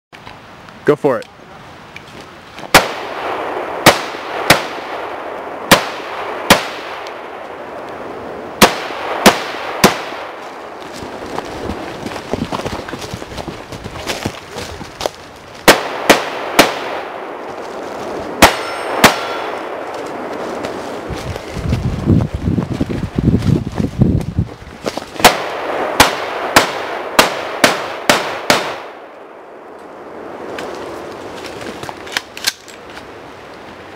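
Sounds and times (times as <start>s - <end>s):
rifle shots with echo: 2.7s - 7.6s, 8.6s - 10.4s, 15.6s - 17.5s, 18.3s - 20.4s, 25.2s - 29.4s
running footsteps on leaf litter: 10.4s - 15.8s, 17.4s - 25.3s, 30.4s - 32.1s.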